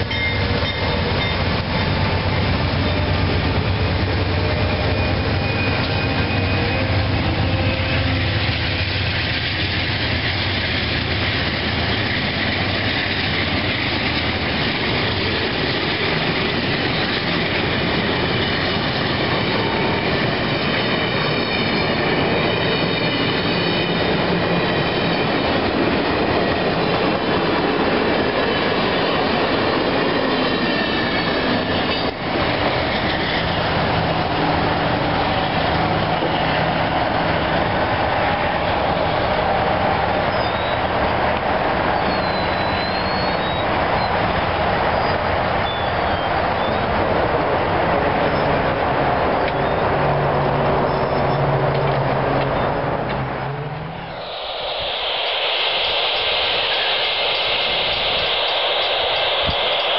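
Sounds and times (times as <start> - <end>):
train wheels rolling on rail: 0.0 - 59.9
high whine from wheels: 49.4 - 59.9.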